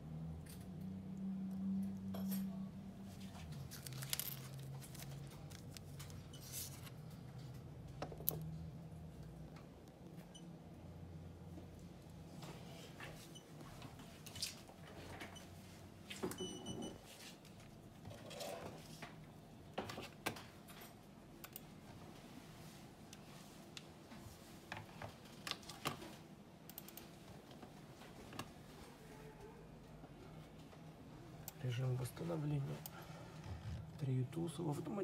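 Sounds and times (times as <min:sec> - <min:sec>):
small items handled on a workbench: 0:02.1 - 0:08.5.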